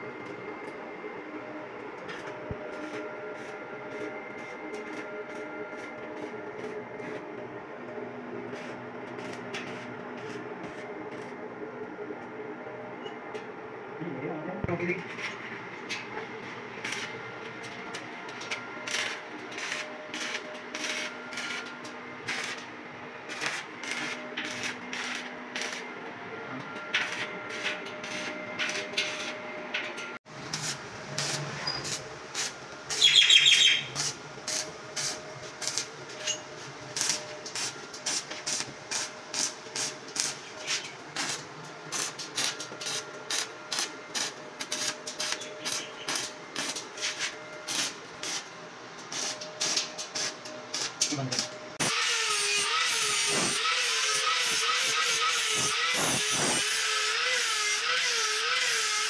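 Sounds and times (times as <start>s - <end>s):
arc welding crackles: 2.0s - 7.2s, 8.4s - 11.4s, 15.9s - 26.0s, 27.0s - 29.4s, 30.3s - 59.0s.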